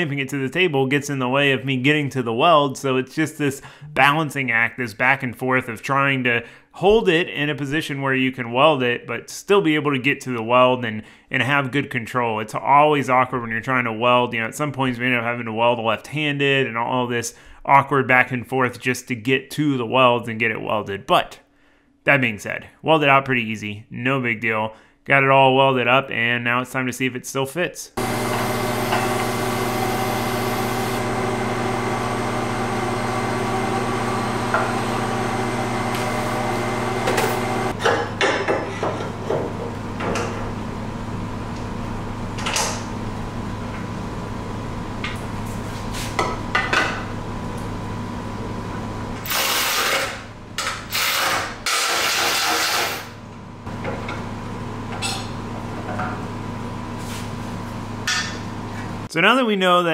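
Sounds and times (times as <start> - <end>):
power tool bursts: 28.0 - 37.8, 49.2 - 53.2.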